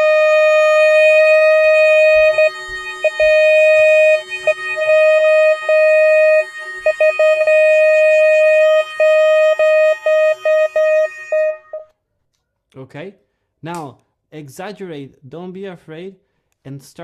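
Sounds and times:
saxophone long note: 0.0 - 11.9.

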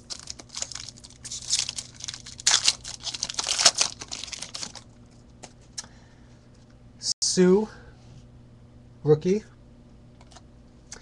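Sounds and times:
foil pack tearing and crinkling: 0.0 - 4.8.

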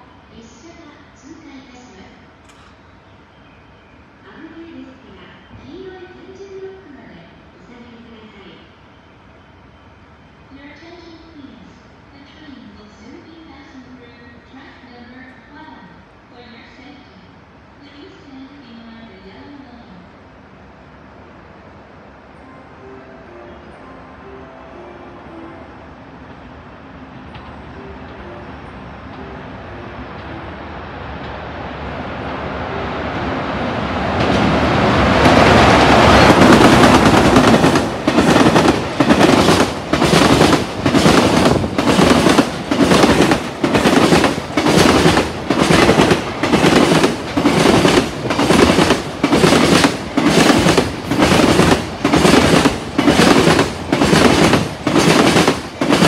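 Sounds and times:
freight train rumble: 19.7 - 56.0
train wheels clattering over rail joints: 36.0 - 56.0.

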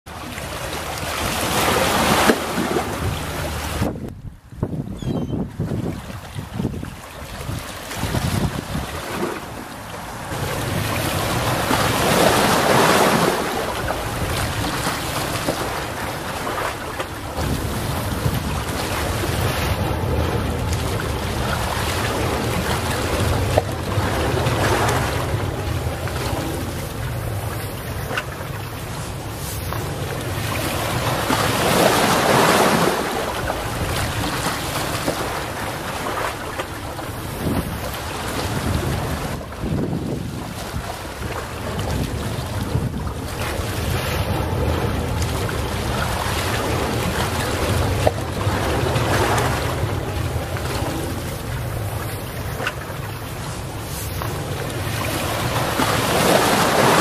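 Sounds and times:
small waves washing onto shore: 0.1 - 4.7, 5.4 - 57.0
low rumble: 17.1 - 31.7, 41.6 - 56.2.

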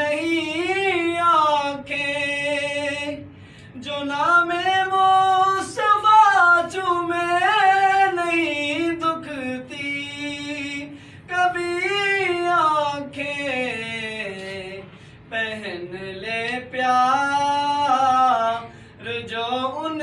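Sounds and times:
man singing unaccompanied: 0.0 - 20.0
singer breathing: 3.2 - 3.8, 10.9 - 11.3, 14.8 - 15.3, 18.6 - 19.0.

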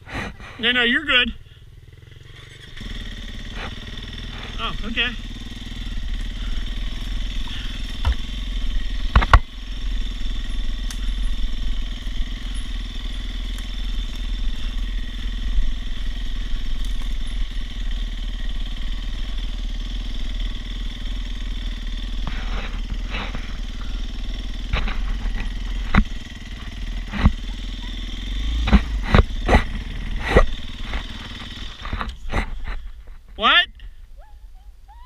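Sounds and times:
dirt bike engine running: 0.0 - 34.2.

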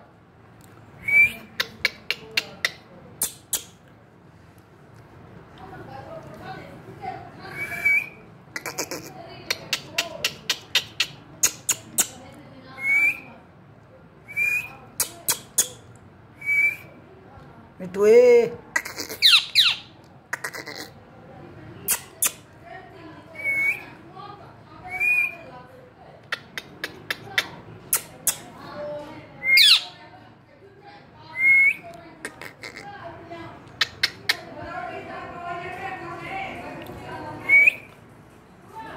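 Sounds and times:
parrot talking-like babble: 8.5 - 12.2, 18.6 - 21.1, 21.8 - 22.5, 26.2 - 28.6, 29.5 - 30.0, 32.2 - 33.0, 33.7 - 34.6
parrot sharp clicks: 9.5 - 12.1, 26.3 - 28.4, 33.7 - 34.4
parakeet whistled calls: 19.2 - 19.9, 29.4 - 30.0
parrot whistled call: 29.4 - 29.9.

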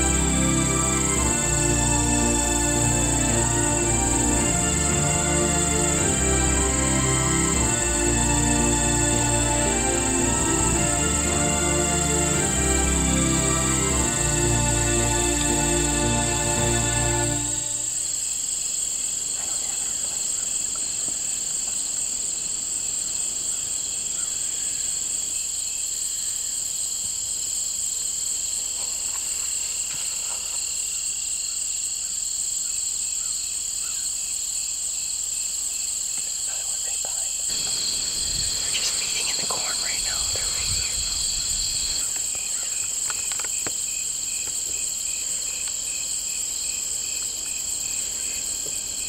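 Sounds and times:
background music: 0.0 - 18.2
crickets and insects chirping: 0.0 - 49.0.

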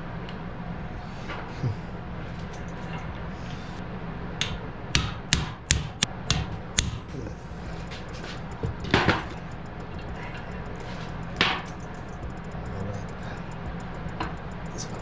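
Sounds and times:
hammer striking metal pipe: 4.4 - 7.1.

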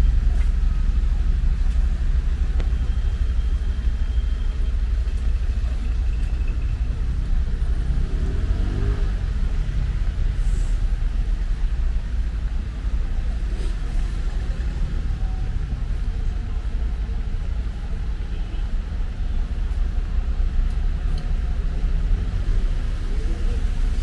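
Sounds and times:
low rumble of car traffic: 0.0 - 24.0.

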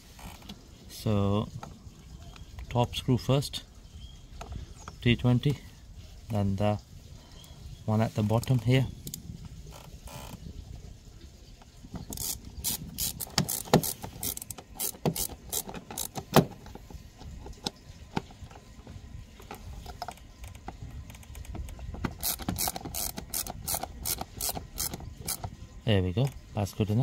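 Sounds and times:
hand ratchet clicking: 12.0 - 16.8, 22.1 - 25.5.

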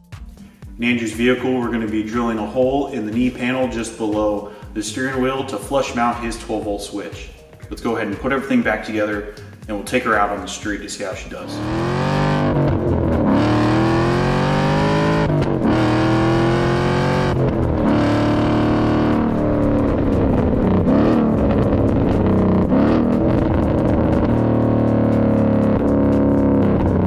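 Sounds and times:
car exhaust revving: 11.2 - 27.0
rock music with distorted guitar: 11.3 - 27.0.

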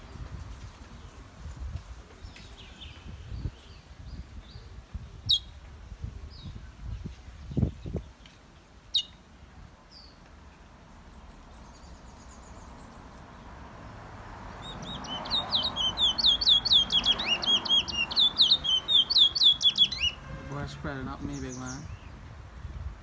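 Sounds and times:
songbird chirps and whistles: 14.6 - 20.2.

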